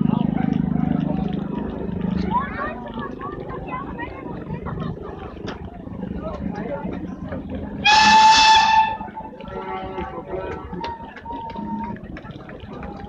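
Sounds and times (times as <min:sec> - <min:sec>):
steam locomotive whistle: 0:07.8 - 0:09.1.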